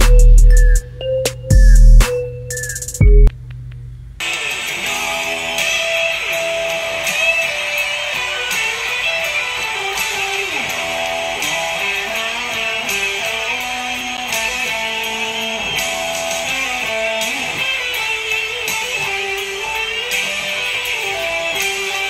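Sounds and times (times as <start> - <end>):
electric guitar melody: 4.2 - 22.0.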